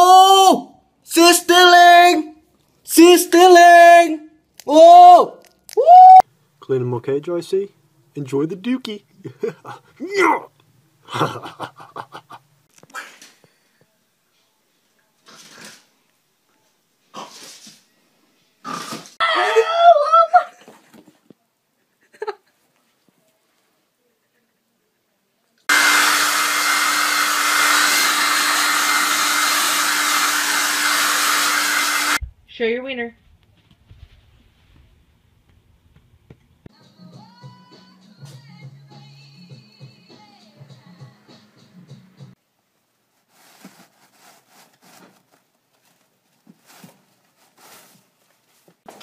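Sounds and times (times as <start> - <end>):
electric appliance motor humming: 25.7 - 32.2
tissue paper rustling: 43.0 - 49.0.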